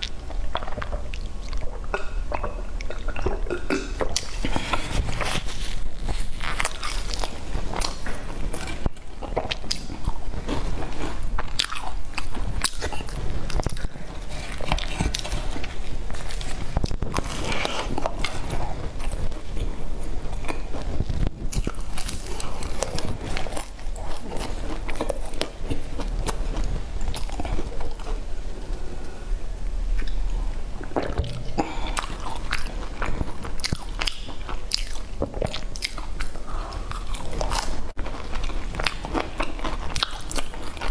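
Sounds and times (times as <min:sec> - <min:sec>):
crunchy pastry chewing: 0:00.0 - 0:29.2, 0:29.9 - 0:40.9.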